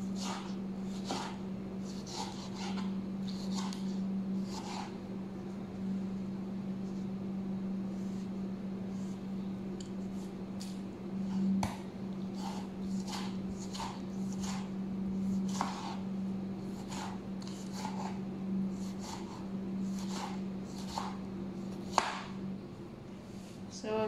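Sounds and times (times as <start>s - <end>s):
knife slicing tomato on board: 0.0s - 5.0s, 9.9s - 16.0s, 16.6s - 22.3s
steady low hum: 0.0s - 24.0s.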